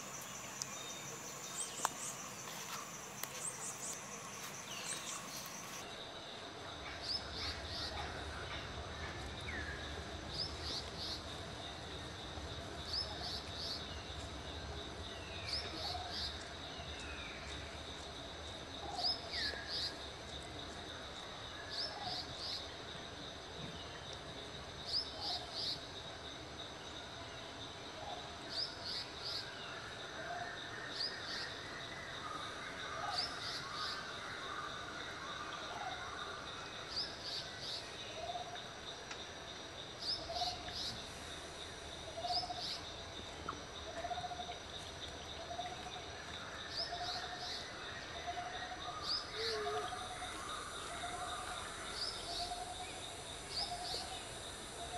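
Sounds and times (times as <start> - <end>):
lower falling bird calls: 0.0 - 5.8
insect drone: 0.0 - 54.9.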